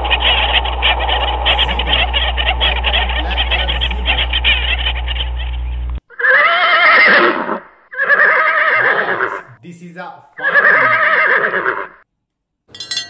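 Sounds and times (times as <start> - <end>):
low hum: 0.0 - 6.0
chorus of rapid animal calls: 0.0 - 9.5, 10.4 - 12.0
horse whinnying: 6.1 - 9.5, 10.4 - 12.0.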